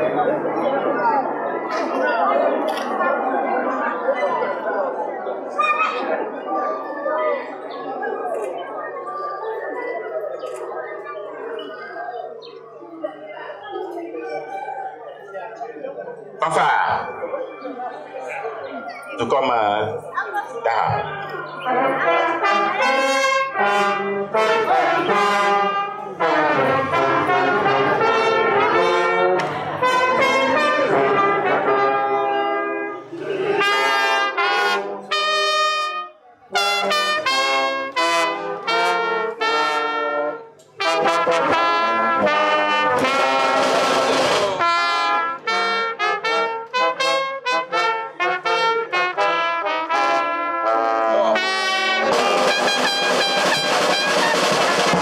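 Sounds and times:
brass band playing: 21.6 - 55.0.

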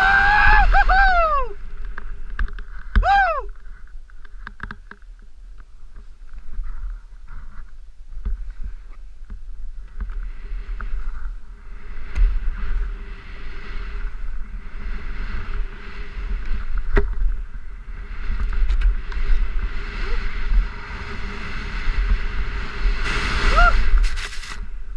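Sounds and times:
skis hissing through snow: 19.0 - 24.9.

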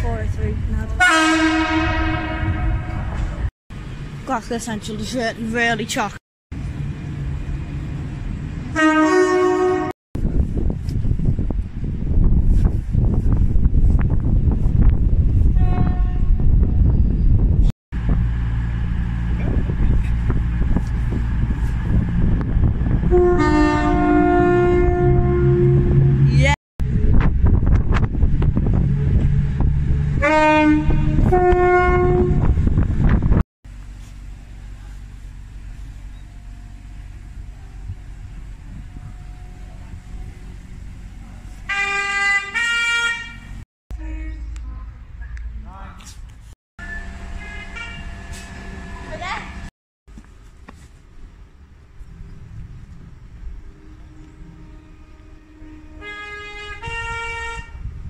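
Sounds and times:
wind rumble: 0.0 - 5.1, 9.8 - 33.4, 35.3 - 41.7, 51.0 - 58.0
train horn toot: 1.0 - 3.4, 8.7 - 9.9, 15.5 - 16.5, 23.0 - 26.4, 30.2 - 32.6, 41.7 - 44.6, 46.8 - 48.6, 53.7 - 58.0
diesel train engines idling: 33.7 - 42.4, 46.8 - 49.7.

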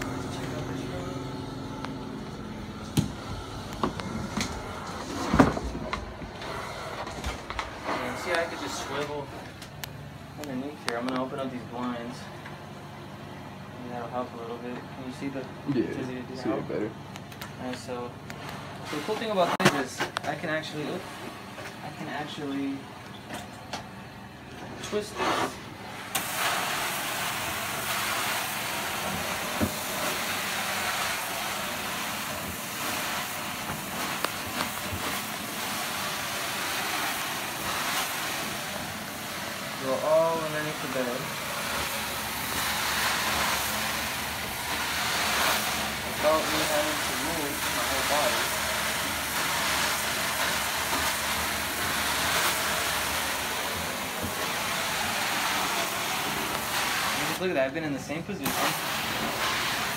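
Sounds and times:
rushing hiss of suction: 25.0 - 57.6, 58.2 - 59.9.

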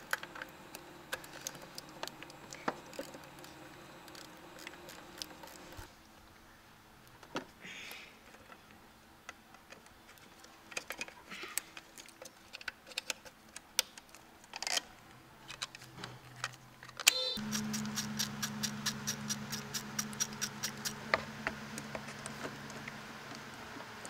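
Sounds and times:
steady hum: 0.0 - 6.8
gloved hands clicking and rustling: 7.9 - 14.9, 15.5 - 21.0.

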